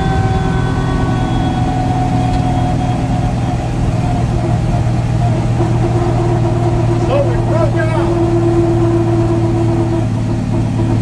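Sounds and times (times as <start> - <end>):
car engine running steadily: 0.0 - 11.0.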